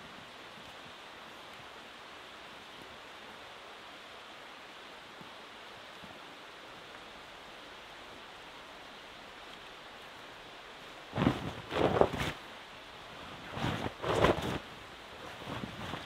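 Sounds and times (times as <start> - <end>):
steady background hiss: 0.0 - 16.0
canvas fabric rustling and flapping: 11.0 - 16.0.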